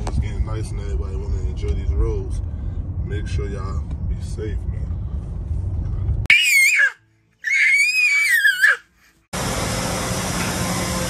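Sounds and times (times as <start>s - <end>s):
baby crying: 6.3s - 8.9s
repair shop hum and hiss: 9.4s - 11.0s.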